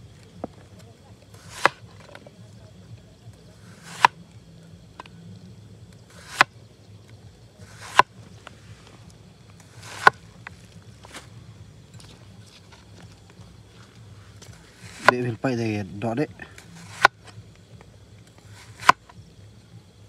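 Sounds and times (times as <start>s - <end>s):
cleaver chopping cucumber on board: 1.4s - 2.2s, 3.6s - 4.2s, 6.1s - 6.5s, 7.6s - 8.2s, 9.7s - 10.2s, 14.8s - 15.3s, 16.8s - 17.2s, 18.5s - 19.1s.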